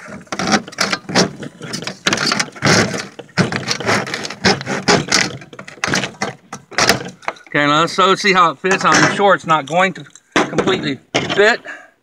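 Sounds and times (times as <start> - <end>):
hand saw cutting plastic: 0.0 - 7.3.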